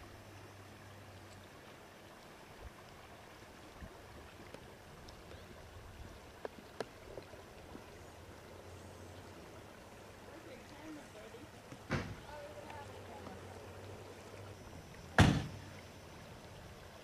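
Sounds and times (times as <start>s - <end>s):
faint outdoor background noise: 0.0s - 17.0s.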